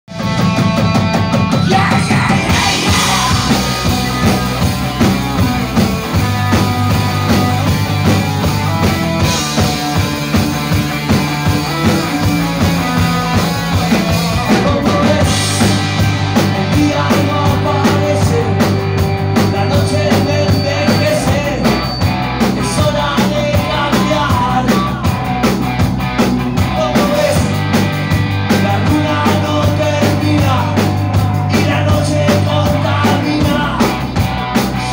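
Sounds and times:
live rock band playing: 0.1 - 34.9
person singing: 1.6 - 4.5, 11.6 - 25.2, 26.6 - 27.6, 28.5 - 34.0.

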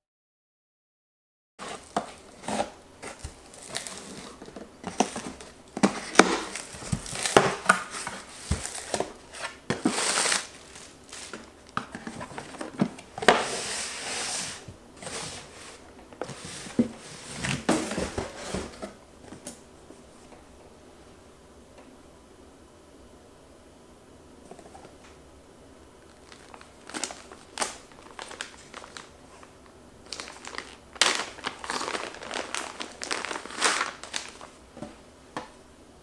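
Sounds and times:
plastic packaging crinkling: 1.6 - 13.6, 26.0 - 34.9
packing tape ripping: 9.8 - 11.5, 26.2 - 29.1, 30.1 - 34.5
cardboard scraping and knocking: 16.2 - 19.0.

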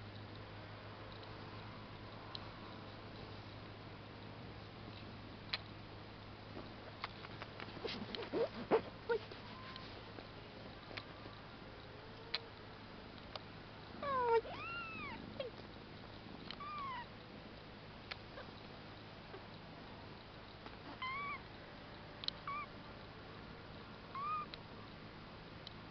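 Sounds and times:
kittens mewing: 14.0 - 15.6, 16.6 - 17.1, 20.8 - 21.4, 22.5 - 22.7, 24.2 - 24.5
faint clicks: 22.2 - 22.4.

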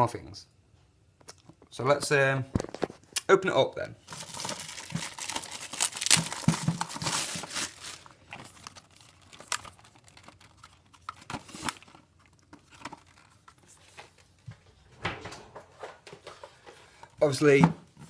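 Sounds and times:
plastic shrink-wrap crinkling: 4.0 - 13.8.

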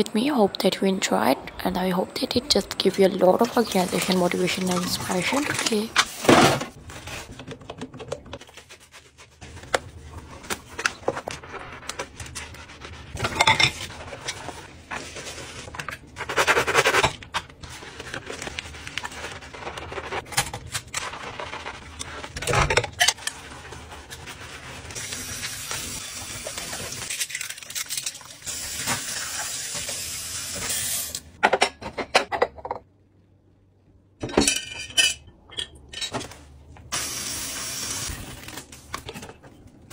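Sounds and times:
sponge scrubbing bowls: 2.2 - 6.3, 6.9 - 20.3, 23.2 - 27.1
running tap water: 25.0 - 27.1, 28.2 - 31.2, 37.0 - 38.2.

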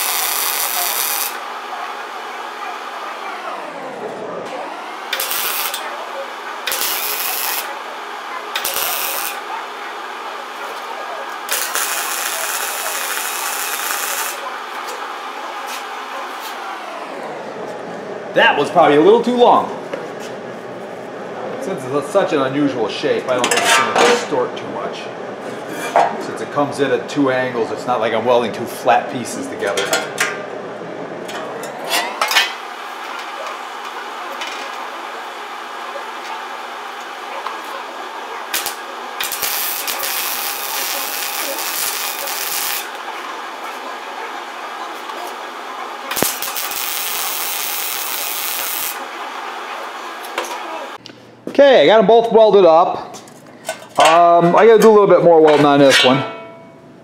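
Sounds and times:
steady hiss: 0.0 - 3.2, 5.0 - 16.2, 32.2 - 51.0
welder arc crackling: 0.0 - 17.6, 31.2 - 51.0
metal panels clinking and scraping: 23.4 - 24.4, 31.2 - 33.4.

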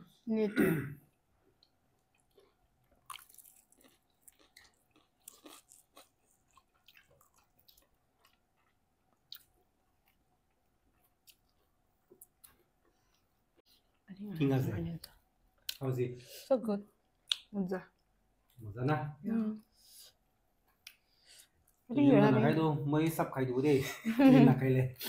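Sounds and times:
chewing food: 1.4 - 15.8.

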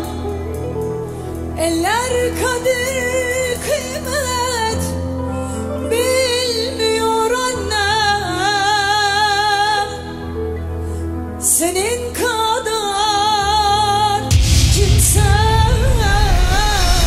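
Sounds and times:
woman singing with vibrato: 0.0 - 5.1, 11.4 - 17.0
instrumental backing: 0.0 - 17.0.

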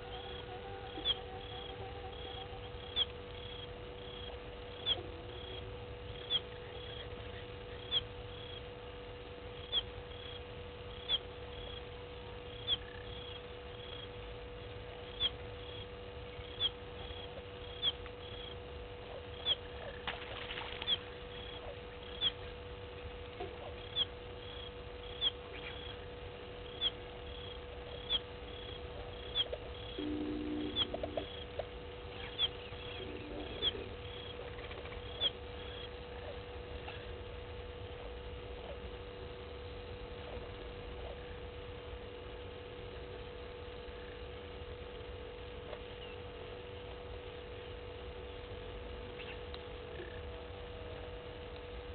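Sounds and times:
lower-pitched animal call: 0.0 - 8.1, 26.7 - 37.2
low ambient hum: 0.0 - 51.9
fainter answering note: 30.0 - 31.3
animal chirping: 32.2 - 37.0.

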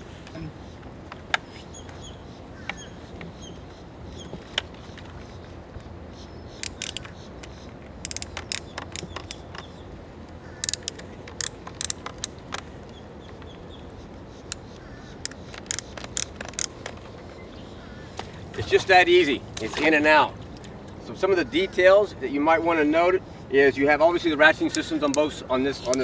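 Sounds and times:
ratchet buckles clicking: 6.6 - 9.7, 10.6 - 12.7, 14.4 - 17.0, 24.6 - 26.0.

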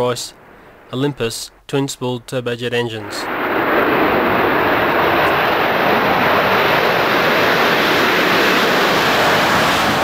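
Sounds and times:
jet aircraft taking off: 3.0 - 10.0.

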